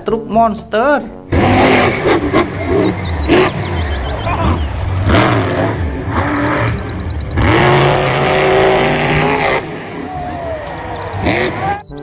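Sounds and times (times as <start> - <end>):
car engine revving: 1.3 - 11.8.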